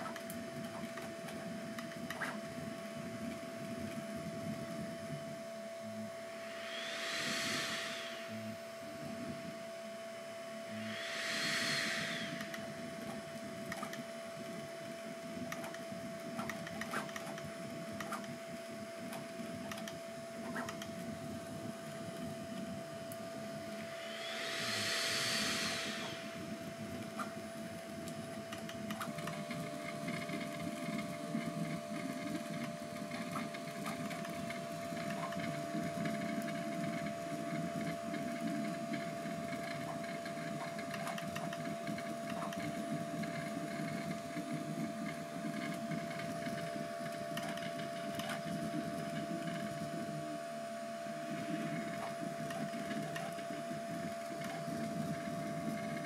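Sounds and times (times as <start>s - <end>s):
printer whine: 5.8s - 21.2s, 21.9s - 56.0s
brief rising and falling whir: 6.1s - 14.0s, 23.4s - 27.4s.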